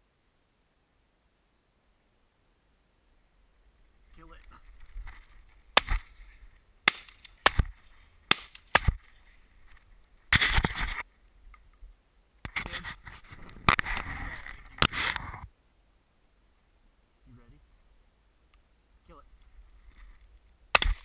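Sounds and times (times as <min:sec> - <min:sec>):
rough rustling noise: 0:03.1 - 0:17.0, 0:18.8 - 0:21.0
shotgun shots: 0:20.8 - 0:21.0.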